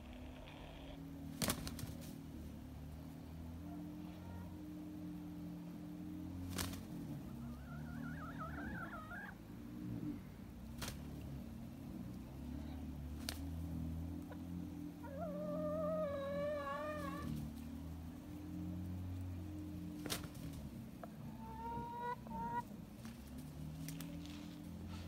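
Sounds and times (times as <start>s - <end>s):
low steady hum: 0.0s - 25.0s
chickens calling: 3.7s - 25.0s.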